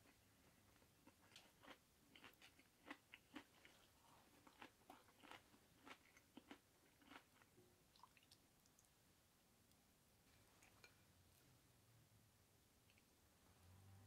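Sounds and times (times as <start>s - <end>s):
crunching and chewing: 0.0s - 8.1s.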